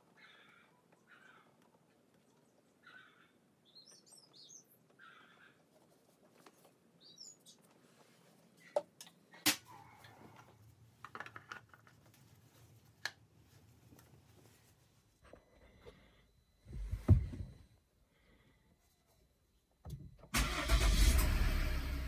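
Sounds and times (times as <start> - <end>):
bird chirping: 0.0 - 5.8, 6.5 - 7.8.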